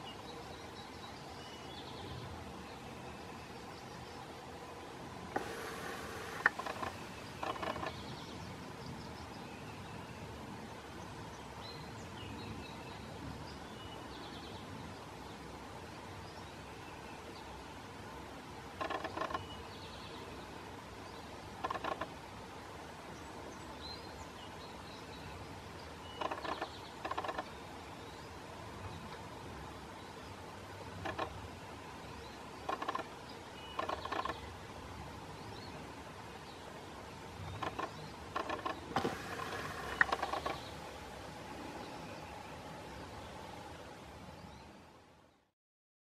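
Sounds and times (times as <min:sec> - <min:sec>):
faint songbird chirps: 0:00.0 - 0:18.0, 0:18.8 - 0:22.3, 0:23.1 - 0:45.5
woodpecker chiselling wood: 0:05.3 - 0:08.0, 0:18.8 - 0:19.5, 0:21.6 - 0:22.1, 0:26.2 - 0:27.5, 0:31.0 - 0:31.4, 0:32.6 - 0:33.1, 0:33.7 - 0:34.4, 0:37.5 - 0:40.8.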